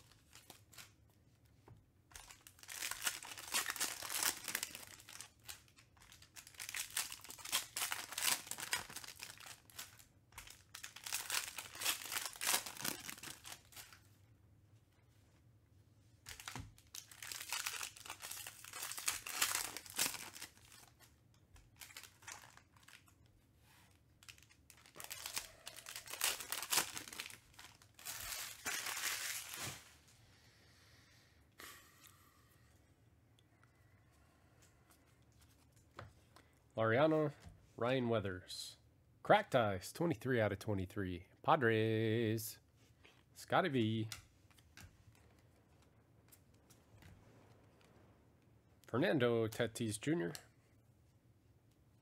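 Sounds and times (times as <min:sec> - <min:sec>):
card pack wrappers tearing: 0:02.2 - 0:14.0, 0:16.3 - 0:21.1, 0:21.8 - 0:23.2, 0:24.2 - 0:29.9.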